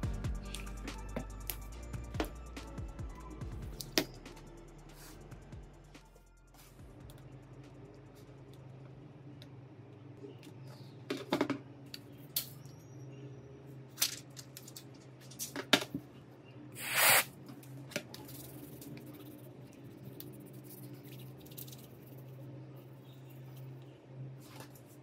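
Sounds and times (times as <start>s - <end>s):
short hiss: 16.8s - 17.3s.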